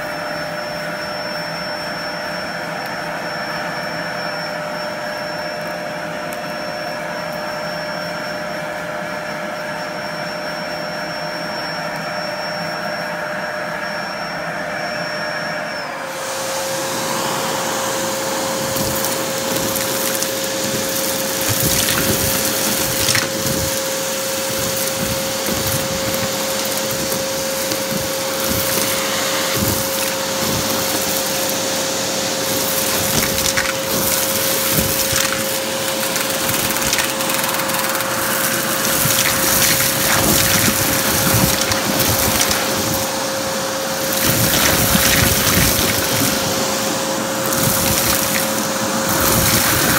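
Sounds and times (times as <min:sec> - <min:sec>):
vacuum cleaner running: 0:00.0 - 0:49.9
debris crackling through hose: 0:18.0 - 0:49.9.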